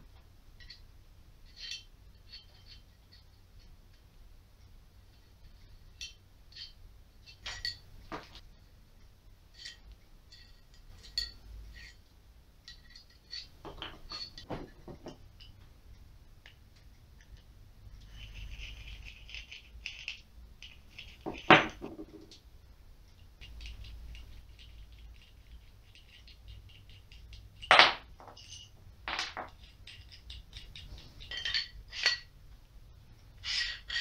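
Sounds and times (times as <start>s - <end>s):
metal parts clicking and clinking: 1.4s - 3.4s, 5.9s - 8.4s, 9.5s - 12.0s, 12.6s - 15.6s, 23.4s - 32.3s, 33.4s - 34.0s
rubbing or rustling: 18.0s - 22.3s.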